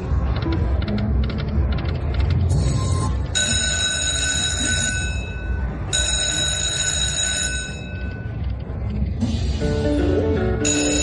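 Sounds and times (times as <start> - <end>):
slot machine reels ticking: 0.0 - 9.2, 9.9 - 11.0
bell-like ringing chimes: 10.6 - 11.0.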